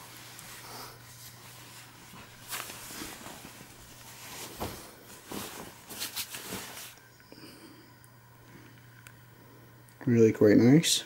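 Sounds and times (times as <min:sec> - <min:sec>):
jacket rustling: 0:00.0 - 0:07.0
steady low hum: 0:00.0 - 0:11.0.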